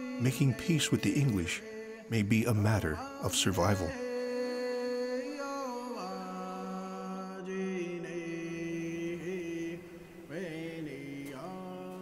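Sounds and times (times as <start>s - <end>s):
wordless chanting voice: 0.0s - 12.0s.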